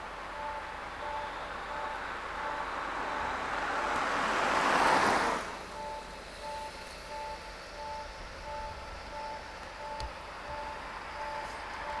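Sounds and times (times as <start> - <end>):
two-tone electronic alarm: 0.3 - 4.0, 5.6 - 12.0.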